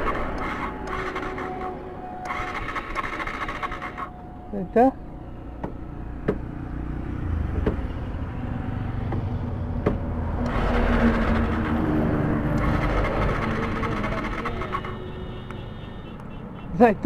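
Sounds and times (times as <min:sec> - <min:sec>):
road noise rushing: 0:00.0 - 0:17.0
vehicle engine rumbling: 0:00.0 - 0:17.0
sharp clicks: 0:12.4 - 0:15.6.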